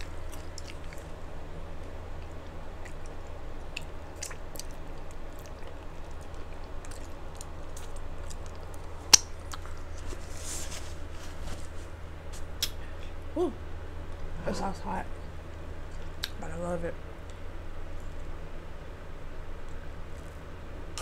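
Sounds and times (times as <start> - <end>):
mouth clicks and wet smacks: 0.0 - 1.1, 2.2 - 9.8, 12.6 - 12.8, 16.0 - 16.4
chewing crunchy food: 0.0 - 10.2
steady low hum: 0.0 - 21.0.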